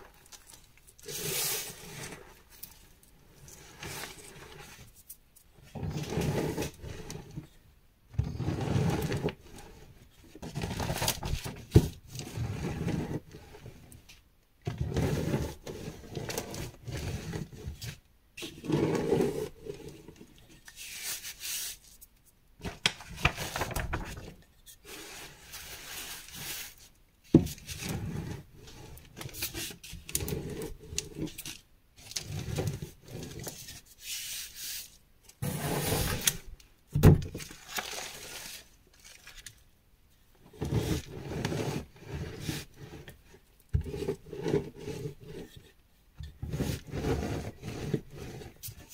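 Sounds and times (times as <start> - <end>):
rolling pin crunching chalk: 14.7 - 31.4, 32.2 - 36.5.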